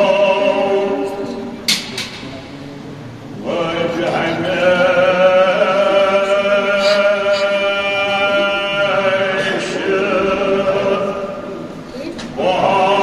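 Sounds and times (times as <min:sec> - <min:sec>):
man chanting: 0:03.4 - 0:11.6.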